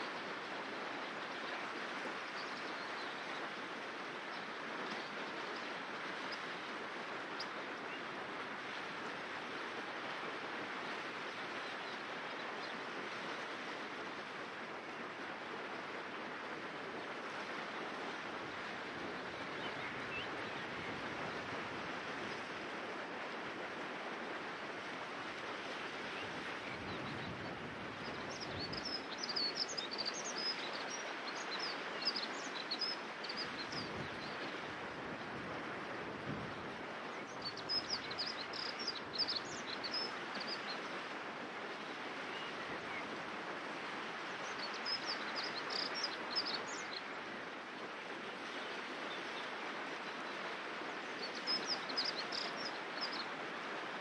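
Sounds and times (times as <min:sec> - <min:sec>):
river water rushing over stones: 0:00.0 - 0:26.8, 0:27.5 - 0:54.0
songbird singing: 0:26.2 - 0:34.6, 0:37.1 - 0:40.9, 0:44.4 - 0:47.2, 0:51.0 - 0:53.3.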